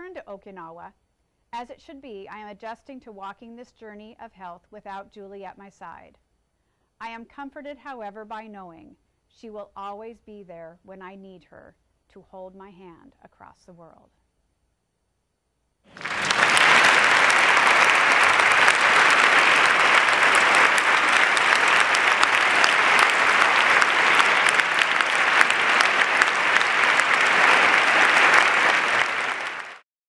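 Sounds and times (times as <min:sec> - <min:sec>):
audience applauding: 0:15.9 - 0:29.8.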